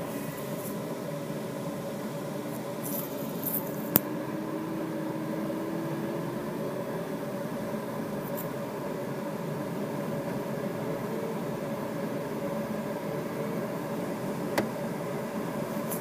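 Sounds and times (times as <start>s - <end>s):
faint steady tones: 0.0s - 16.0s
air rushing in glider cockpit: 4.0s - 15.9s.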